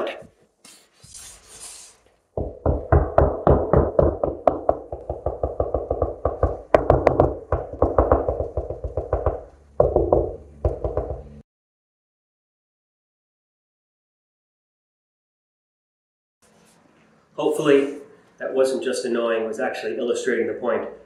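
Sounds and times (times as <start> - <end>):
fist knocking on drywall: 2.4 - 11.4.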